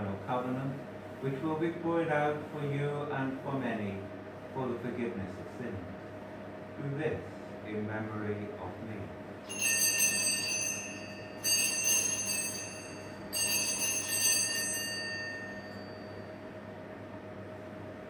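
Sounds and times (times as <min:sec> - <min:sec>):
altar bell ringing: 0:09.5 - 0:16.6.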